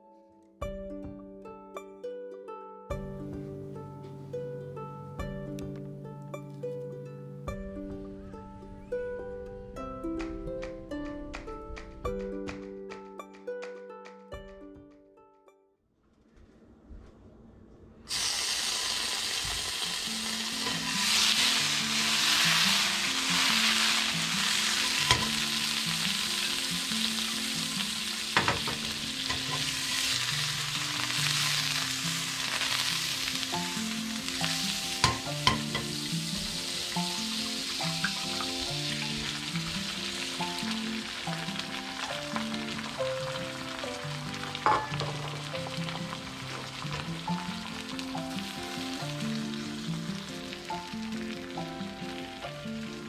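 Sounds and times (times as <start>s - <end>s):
soft background music: 0.0s - 15.8s, 18.2s - 53.0s
butter sizzling in frying pan: 18.1s - 53.0s.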